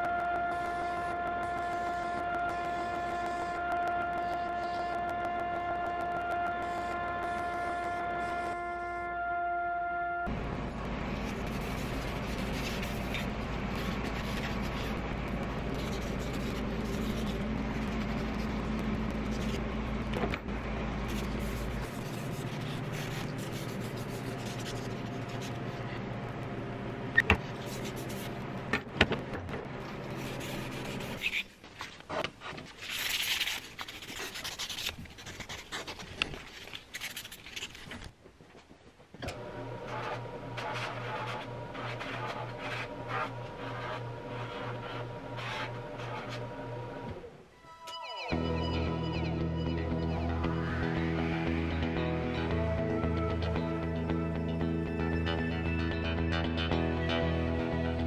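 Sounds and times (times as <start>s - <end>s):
sandpaper rubbing on wood: 11.3s - 15.0s, 21.2s - 25.4s, 30.2s - 31.5s.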